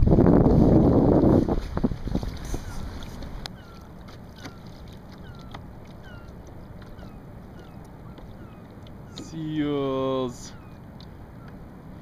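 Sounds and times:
water and wind noise: 0.0 - 12.0.

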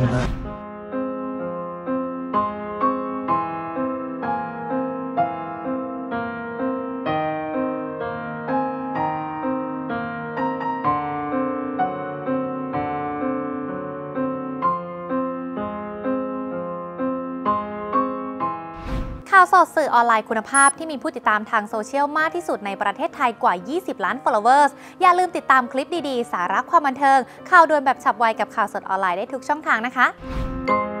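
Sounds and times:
piano music: 0.5 - 19.3, 30.2 - 31.0.

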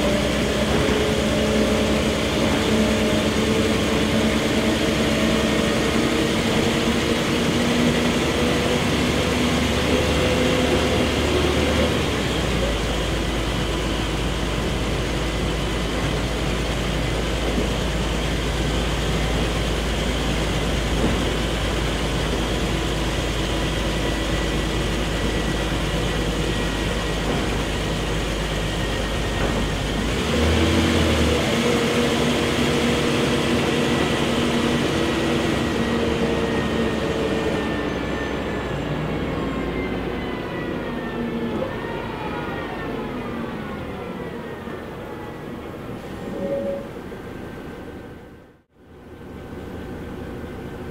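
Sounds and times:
bus engine: 0.0 - 50.9
road noise: 0.0 - 50.9.

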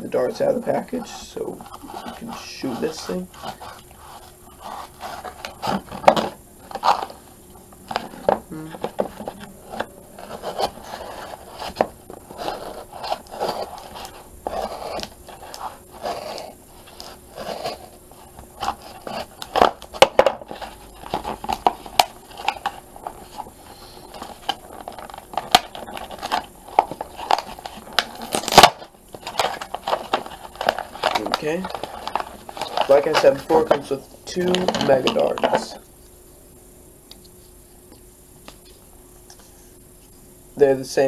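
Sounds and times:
packaging crinkling: 1.6 - 35.7
packaging tearing: 1.8 - 7.2, 9.0 - 33.5.

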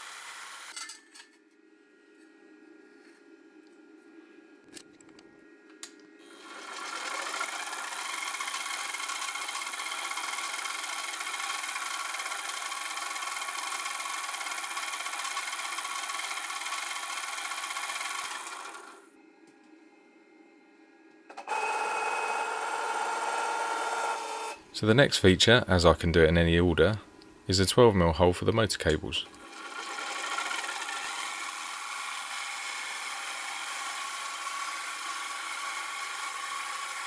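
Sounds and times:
mill spindle motor whine: 0.0 - 0.8, 6.2 - 24.8, 29.3 - 37.0
end mill cutting aluminium: 6.3 - 19.0, 29.4 - 37.0.

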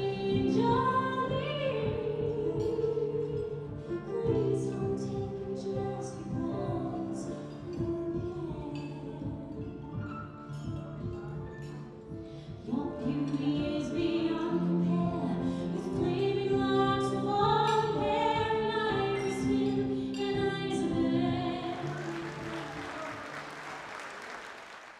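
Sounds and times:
soprano singing: 0.0 - 23.7
piano accompaniment: 0.0 - 24.0
audience applauding: 21.7 - 24.9.

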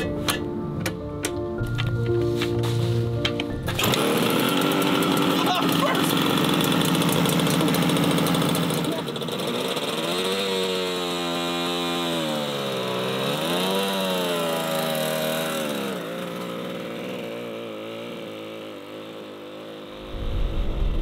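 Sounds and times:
motorcycle engine buzzing: 0.0 - 21.0
low rumble: 20.0 - 21.0.

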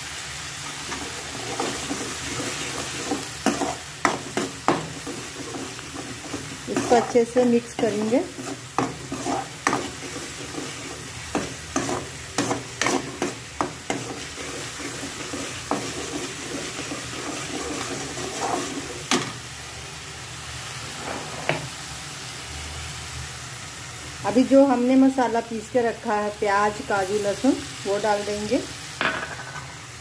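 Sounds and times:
steady sizzle: 0.0 - 30.0
spoon stirring and scraping: 0.8 - 19.3.

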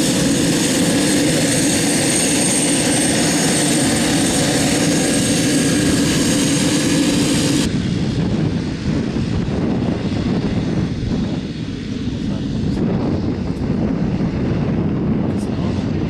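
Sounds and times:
high turbine whine: 0.0 - 16.0
turboprop engine and propeller running: 0.0 - 16.0.

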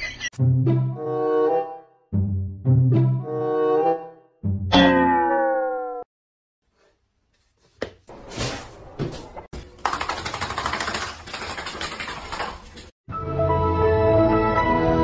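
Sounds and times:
music: 0.4 - 4.7, 13.1 - 15.0.

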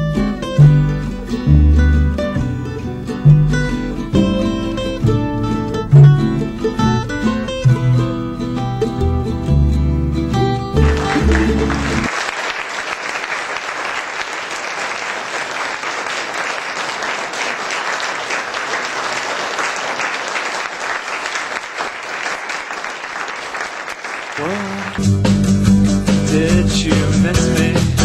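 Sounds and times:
song ending notes: 0.1 - 12.1, 25.0 - 28.0
crowd applauding: 10.8 - 25.1.

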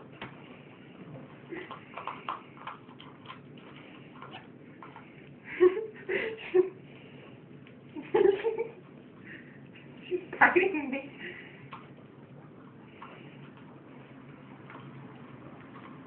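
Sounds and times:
faint clicks and taps: 0.2 - 5.4, 11.6 - 16.0.

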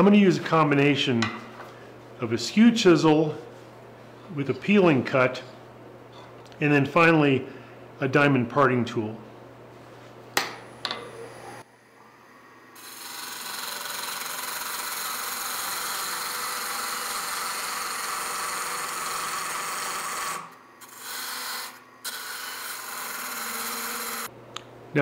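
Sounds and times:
lathe tool cutting wood: 12.8 - 24.3.

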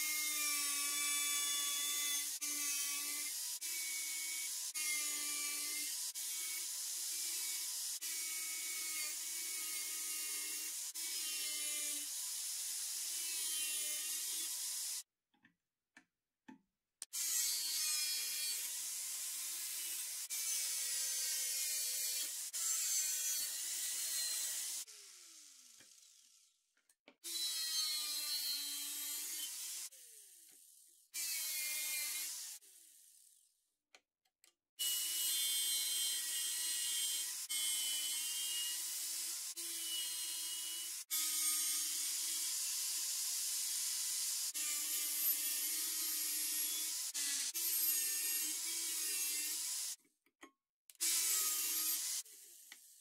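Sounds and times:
angle grinder cutting steel: 17.1 - 26.2, 34.8 - 50.0, 50.9 - 53.0.

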